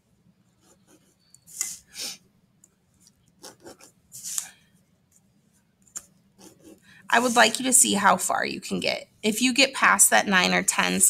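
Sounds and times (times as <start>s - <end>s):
pencil rubbing along ruler on paper: 0.5s - 2.2s, 3.4s - 4.5s, 6.0s - 7.7s.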